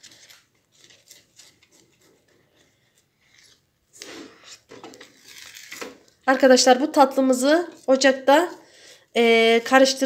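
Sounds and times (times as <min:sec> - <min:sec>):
wooden spoon scraping pot: 0:01.5 - 0:05.2.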